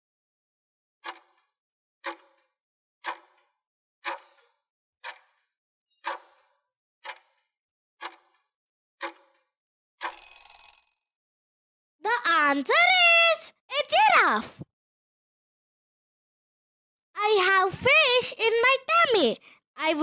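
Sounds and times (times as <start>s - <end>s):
brief timer ring: 10.0s - 10.9s.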